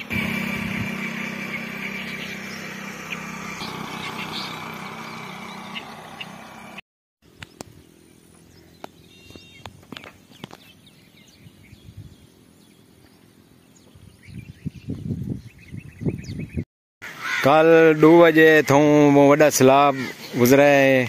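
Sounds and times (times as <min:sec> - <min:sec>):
bird chirps: 0:00.8 - 0:16.6.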